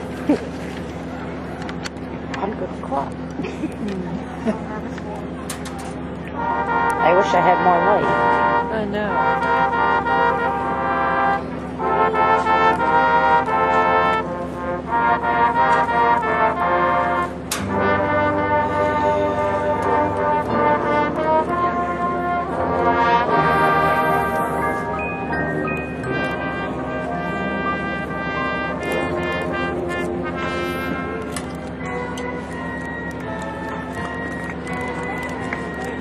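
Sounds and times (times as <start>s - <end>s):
brass section playing chords: 6.2s - 32.2s.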